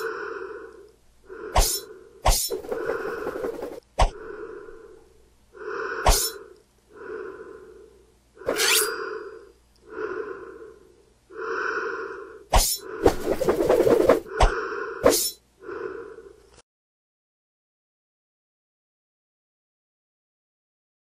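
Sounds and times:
person breathing heavily: 0.0 - 16.6.

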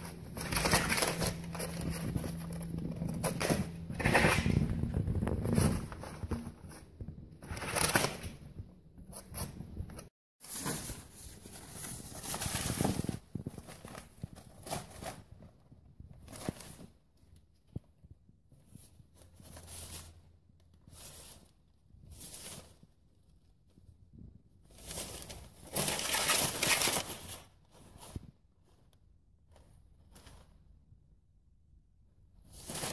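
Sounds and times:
newspaper rustling and crinkling: 0.0 - 8.4, 10.4 - 15.5, 24.7 - 28.2.

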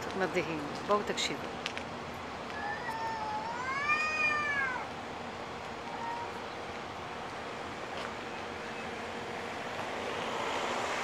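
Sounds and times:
cat meowing: 2.5 - 4.9, 5.8 - 6.4
faint cat call: 2.5 - 4.9, 5.8 - 6.5.

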